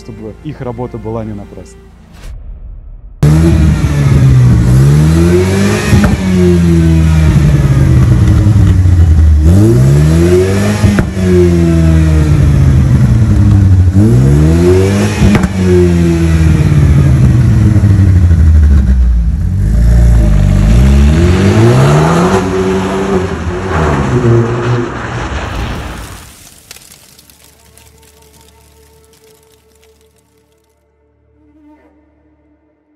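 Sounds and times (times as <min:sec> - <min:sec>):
car engine revving: 0:03.2 - 0:25.2
exhaust crack: 0:24.8 - 0:30.7.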